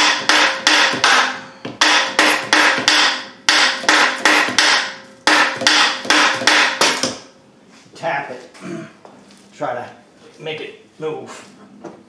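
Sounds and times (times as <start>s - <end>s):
hammer striking steel bar: 0.0s - 7.3s.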